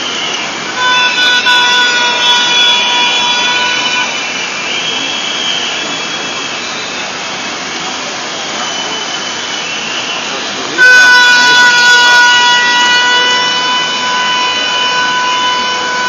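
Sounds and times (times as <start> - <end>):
held horn note: 0.0 - 4.4, 10.7 - 16.0
crowd marching in the rain: 0.0 - 16.0.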